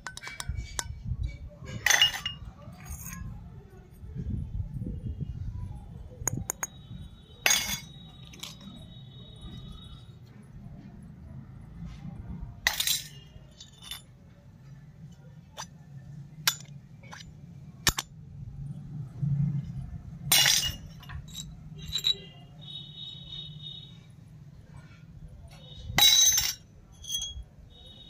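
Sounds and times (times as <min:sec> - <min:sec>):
metal utensils clattering: 0:00.0 - 0:03.3, 0:07.4 - 0:08.8, 0:12.6 - 0:14.2, 0:16.4 - 0:18.1, 0:20.2 - 0:22.4, 0:25.9 - 0:27.4
toy steel utensils clinking: 0:07.4 - 0:08.9, 0:12.7 - 0:14.2, 0:16.4 - 0:18.2, 0:20.3 - 0:22.4, 0:25.8 - 0:27.4.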